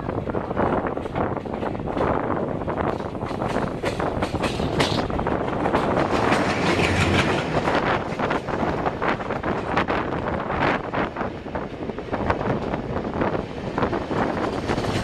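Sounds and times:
passing diesel locomotive: 0.0s - 15.0s
train wheels clattering over rail joints: 0.6s - 10.2s, 13.7s - 15.0s.

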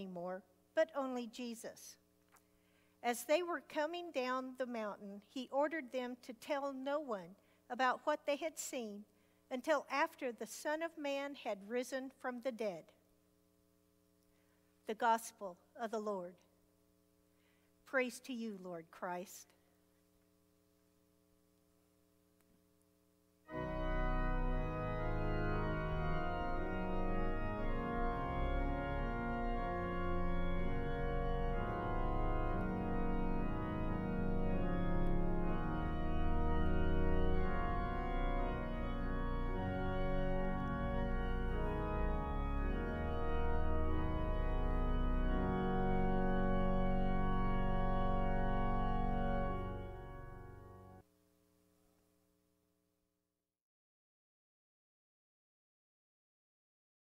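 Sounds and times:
organ playing a hymn: 23.5s - 51.0s.

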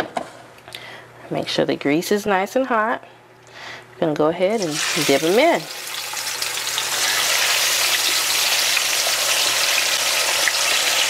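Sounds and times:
chicken deep-frying in oil: 4.6s - 11.0s.

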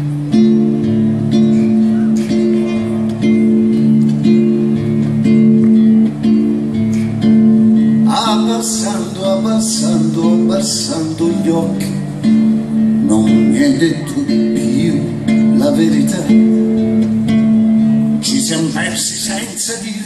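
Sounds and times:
acoustic guitar chords: 0.0s - 20.0s
man singing through pa: 8.0s - 17.0s, 18.2s - 20.0s.

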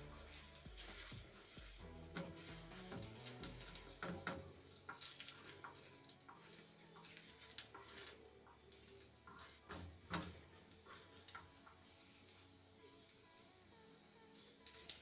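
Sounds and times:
spatula tapping and scraping a pan: 0.0s - 12.0s.

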